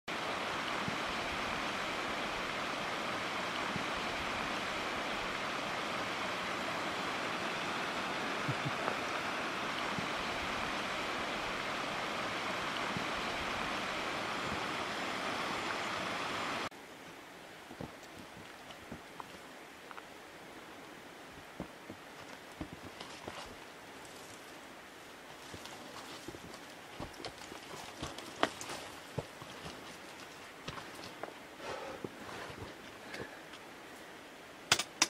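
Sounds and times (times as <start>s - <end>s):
waterfall rushing: 0.1s - 16.7s.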